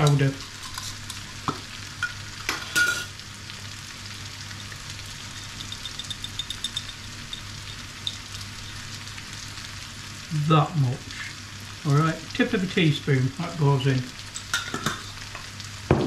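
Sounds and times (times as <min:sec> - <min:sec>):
food sizzling in a pan: 0:00.0 - 0:16.0
teaspoon clinking in glass jar: 0:04.6 - 0:08.8.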